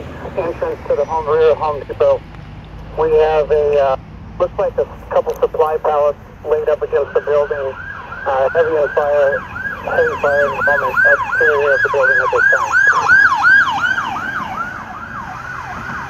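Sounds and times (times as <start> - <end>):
electronic siren yelping: 4.5 - 16.0.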